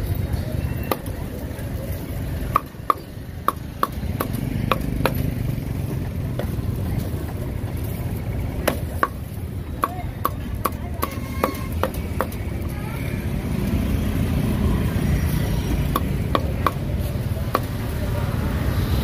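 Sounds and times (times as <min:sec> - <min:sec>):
low traffic rumble: 0:00.0 - 0:19.0
cleaver chopping on wooden block: 0:02.5 - 0:05.4, 0:08.6 - 0:09.2, 0:09.8 - 0:12.4, 0:15.9 - 0:16.9, 0:17.5 - 0:17.7.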